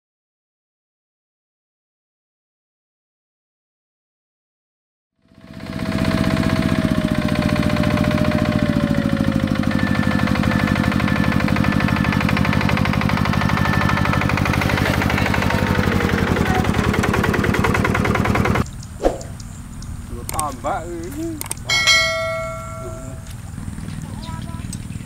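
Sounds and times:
diesel engine running: 5.2 - 25.0.

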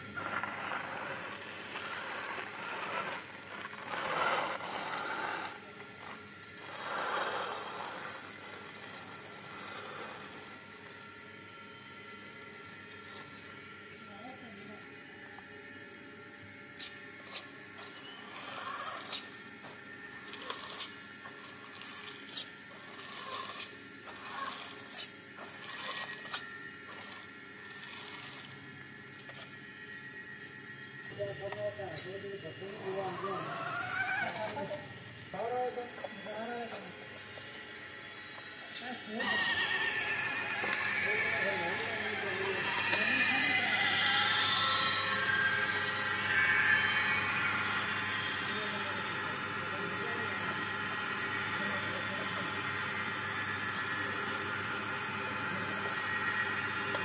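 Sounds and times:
toy tractor motor whirring: 0.0 - 11.0, 16.8 - 29.5, 32.6 - 37.6, 38.4 - 50.6.

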